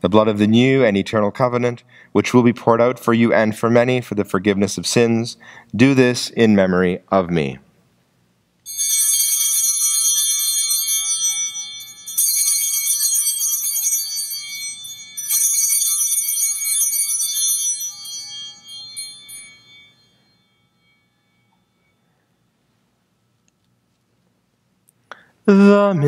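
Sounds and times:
altar bells ringing: 8.7s - 23.1s.

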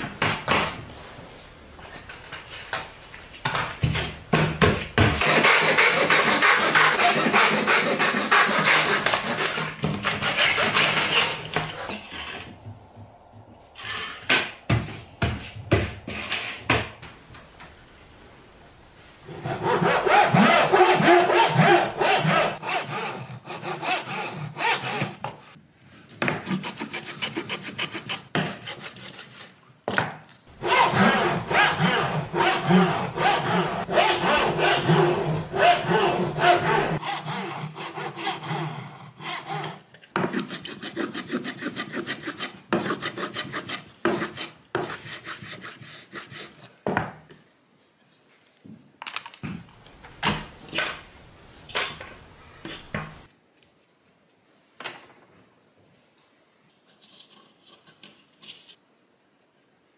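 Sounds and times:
hand saw cutting wood strips: 5.0s - 12.4s, 19.3s - 25.5s, 26.3s - 29.6s, 30.6s - 46.7s.

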